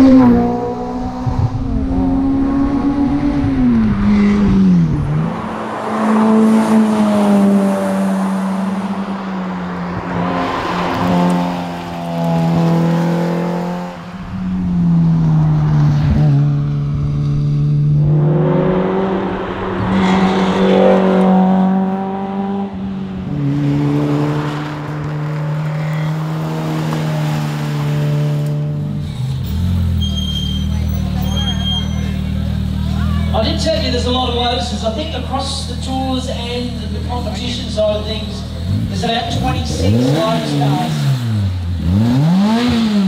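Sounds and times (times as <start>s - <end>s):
car engine revving hard: 15.5s - 30.0s, 38.2s - 43.0s.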